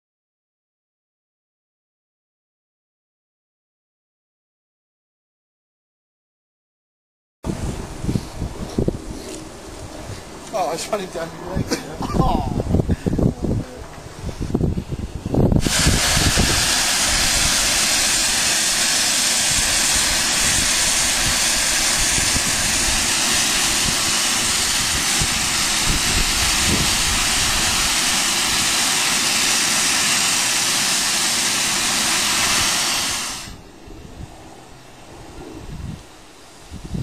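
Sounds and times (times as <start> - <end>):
steam hissing from valve: 15.5 - 33.6.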